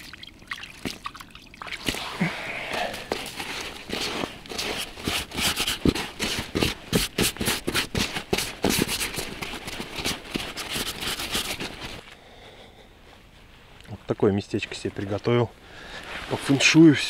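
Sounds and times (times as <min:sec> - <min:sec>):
rustling: 0:01.8 - 0:12.2.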